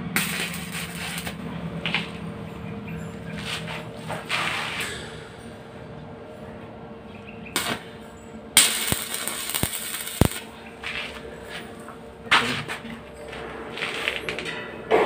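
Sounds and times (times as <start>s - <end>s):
welding arc crackling hiss: 0.0s - 2.2s, 7.5s - 7.9s, 8.6s - 11.6s.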